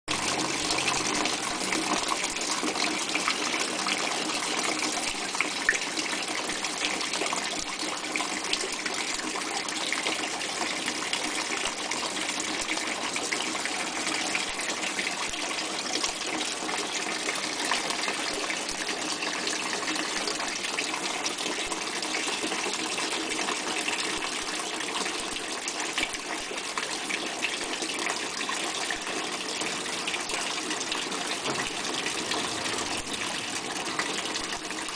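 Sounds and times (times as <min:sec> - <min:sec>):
water spraying and splashing: 0:31.0 - 0:34.9.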